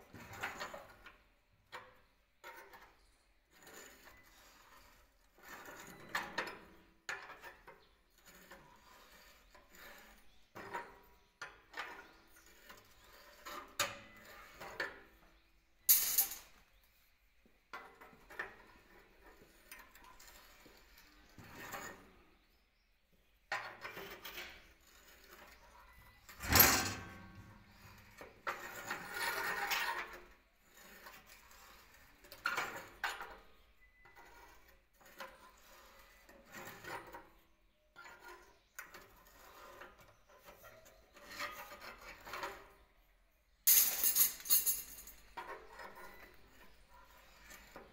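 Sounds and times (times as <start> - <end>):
rebar scraping on metal: 1.9 - 16.6, 17.9 - 22.5, 23.6 - 43.2, 45.2 - 47.9
sharp metal clanks: 15.9 - 16.5, 26.4 - 27.4
metal knocks and clinks: 15.9 - 16.6, 43.7 - 45.6.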